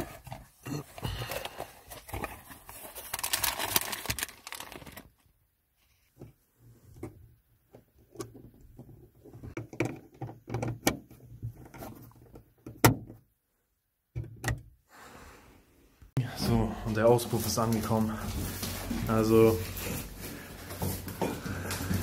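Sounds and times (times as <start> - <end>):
rustling and scraping of objects: 0.0 - 5.1, 8.0 - 12.6, 16.4 - 22.0.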